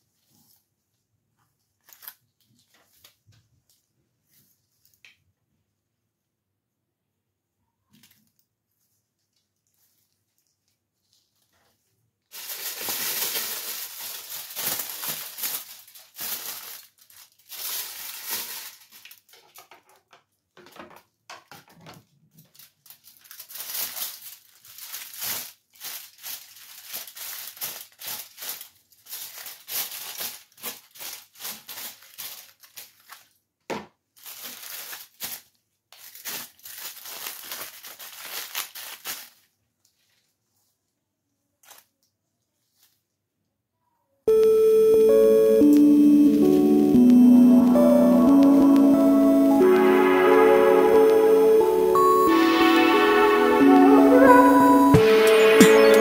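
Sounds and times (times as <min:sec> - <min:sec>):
aluminium foil crinkling: 0:01.8 - 0:03.2, 0:07.9 - 0:20.2, 0:22.3 - 0:33.4, 0:34.1 - 0:40.4, 0:41.6 - 0:43.1.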